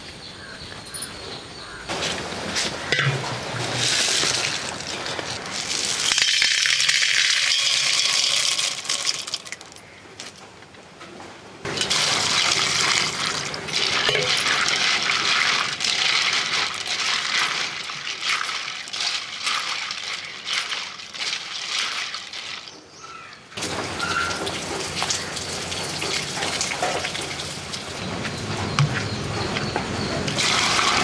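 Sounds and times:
hand washing snails in water: 3.0s - 9.8s, 11.7s - 22.9s, 30.4s - 31.0s
water pouring into a pot: 3.5s - 9.6s, 11.7s - 22.8s, 23.6s - 27.9s, 30.4s - 31.0s.

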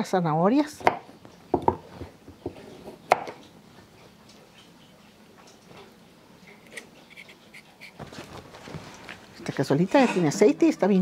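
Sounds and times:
knife scraping carrot: 6.7s - 8.0s.

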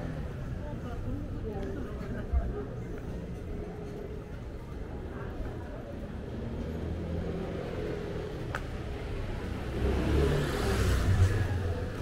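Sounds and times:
car passing by: 9.4s - 12.0s.

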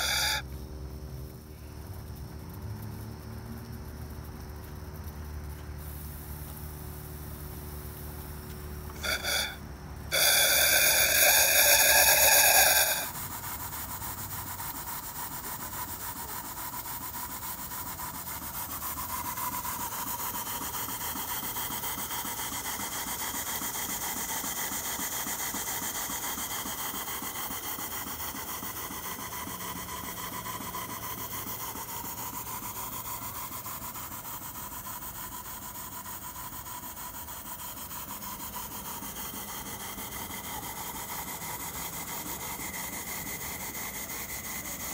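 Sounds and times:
shrill multi-tone whistle: 0.0s - 0.4s, 9.0s - 13.2s
hiss of steam: 0.0s - 0.5s, 5.7s - 44.9s
model steam engine chuffing: 0.0s - 44.9s.

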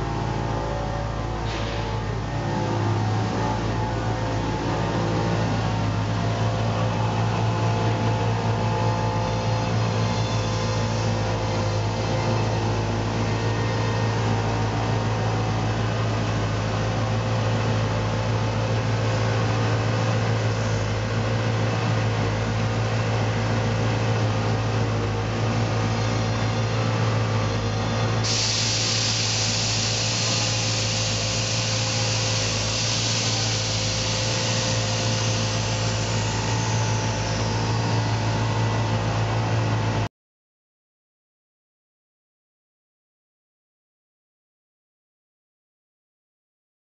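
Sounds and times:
truck engine humming: 0.0s - 40.1s
air hissing from suspension: 28.2s - 37.5s.

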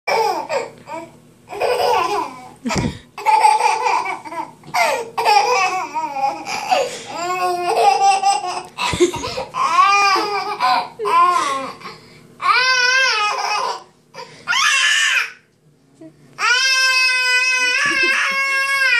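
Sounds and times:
baby laughing and squealing: 1.5s - 2.5s.

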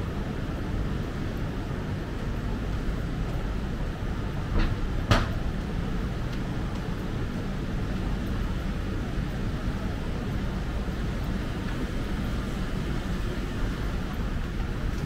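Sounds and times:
low rumble of traffic: 0.0s - 15.0s
sharp knocks: 4.6s - 5.4s.

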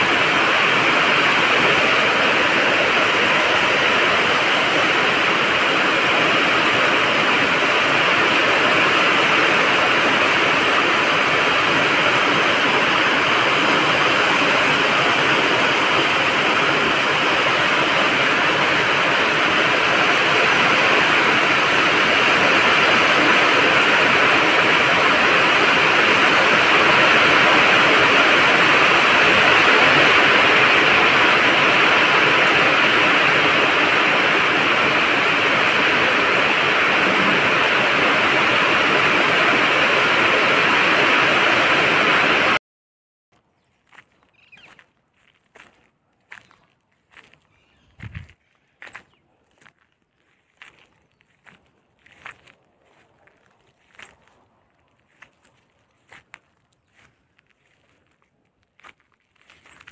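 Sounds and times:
heavy rain falling: 0.0s - 42.6s.

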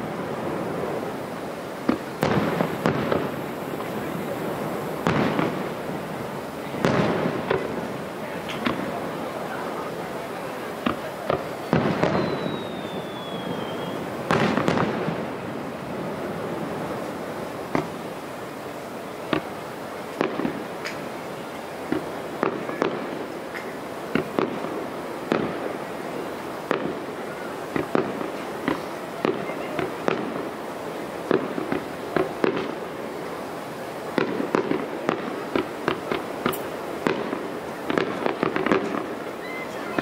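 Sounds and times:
fireworks shells bursting: 10.8s - 15.3s, 34.2s - 39.2s.

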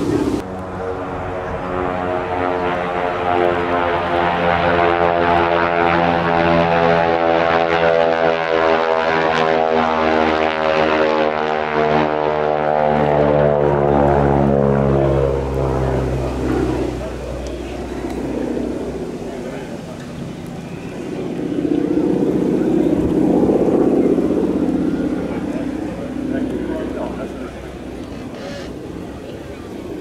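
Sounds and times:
propeller plane flying past: 0.0s - 30.0s.

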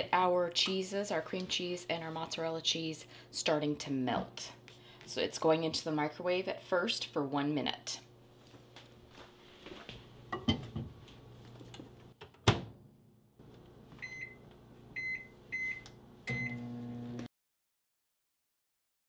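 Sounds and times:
microwave oven humming: 12.8s - 17.3s.

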